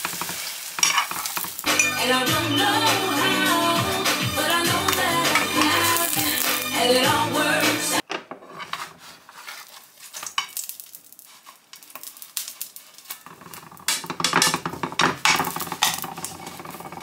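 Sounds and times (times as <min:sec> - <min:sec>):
metal spatula scraping a pan: 0:00.0 - 0:07.6, 0:08.4 - 0:10.6, 0:11.2 - 0:17.0
batter sizzling in oil: 0:00.0 - 0:07.7, 0:09.7 - 0:13.9.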